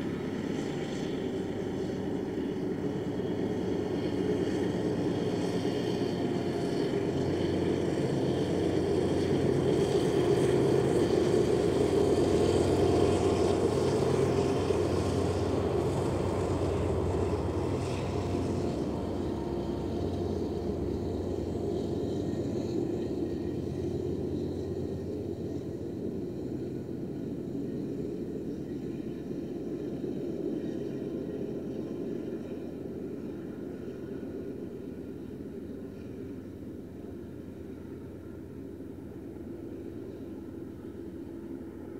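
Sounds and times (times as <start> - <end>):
diesel locomotive hum: 0.0 - 41.9
train cars rumbling on rails: 0.0 - 41.9.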